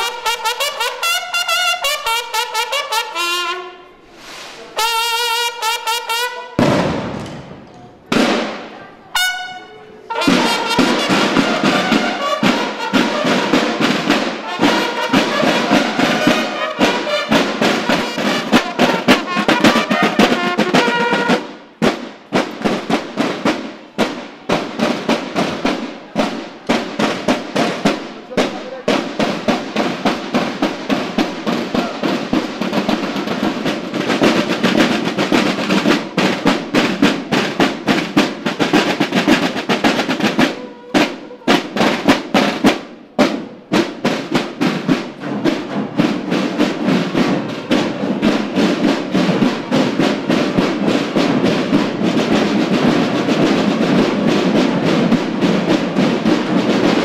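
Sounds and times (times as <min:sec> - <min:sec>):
bugles sounding calls: 0:00.0 - 0:03.9, 0:04.7 - 0:06.6, 0:08.1 - 0:21.6, 0:27.0 - 0:36.3, 0:37.4 - 0:42.7
snare drums playing a march: 0:00.0 - 0:57.0.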